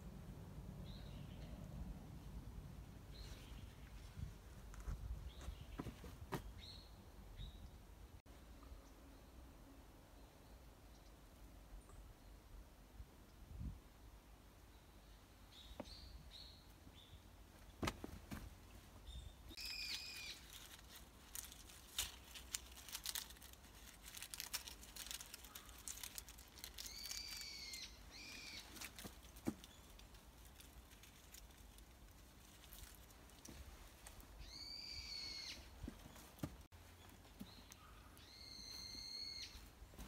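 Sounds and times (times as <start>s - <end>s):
hands rustling in soil: 19.5s - 34.6s
bird calling: 26.7s - 28.9s.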